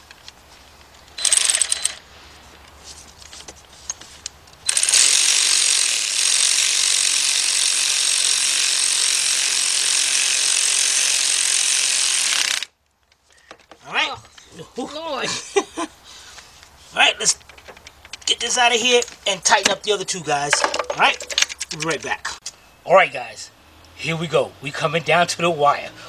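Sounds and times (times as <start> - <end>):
power ratchet running: 1.2 - 2.0, 4.6 - 12.7.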